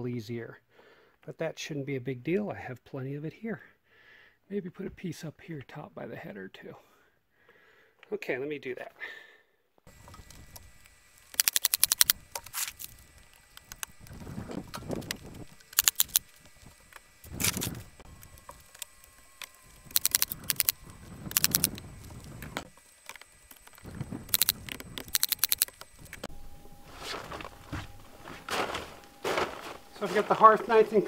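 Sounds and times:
rapid clicking and rattling: 11.3s - 26.3s.

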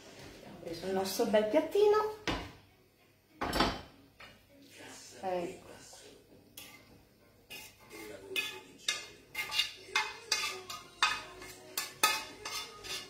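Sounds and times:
utensil scraping a frying pan: 6.6s - 13.0s.

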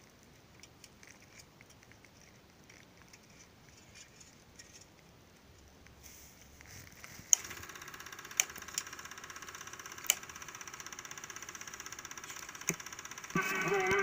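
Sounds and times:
film projector clattering: 7.2s - 14.0s
projector switch clicks: 8.3s - 8.9s, 10.0s - 10.3s.

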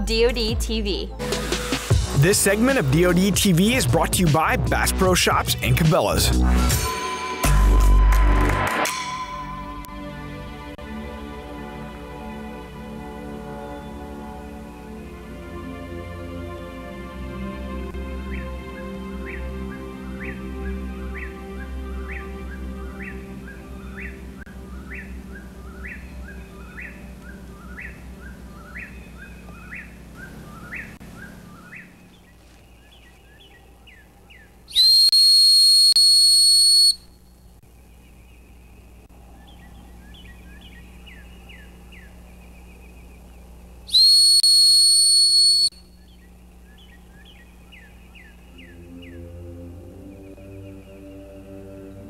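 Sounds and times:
small birds chirping: 18.2s - 49.4s
high-pitched whistle blasts: 34.7s - 37.2s, 43.9s - 45.8s.

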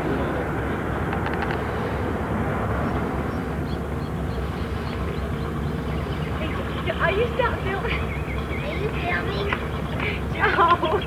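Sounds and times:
low outdoor rumble: 0.0s - 11.0s.

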